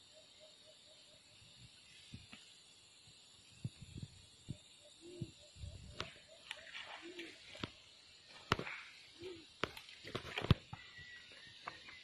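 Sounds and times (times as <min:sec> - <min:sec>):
faint low animal calls: 0:04.5 - 0:08.2.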